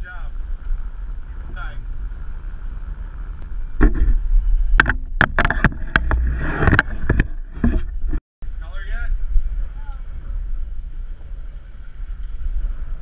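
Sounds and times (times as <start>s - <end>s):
low rumble on a boat: 0.0s - 13.0s
sharp knocks and clicks: 4.8s - 8.2s.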